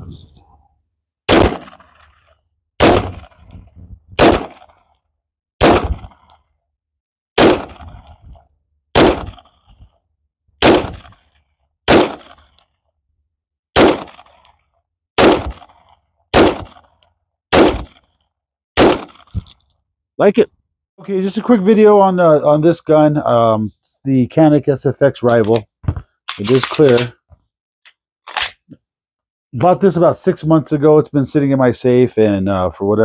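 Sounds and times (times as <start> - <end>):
pistol shots echoing: 1.3 - 1.9, 2.8 - 3.4, 4.2 - 4.7, 5.6 - 6.1, 7.4 - 8.0, 9.0 - 9.4, 10.6 - 11.2, 11.9 - 12.4, 13.8 - 14.3, 15.2 - 15.7, 16.3 - 16.8, 17.5 - 18.0, 18.8 - 19.2.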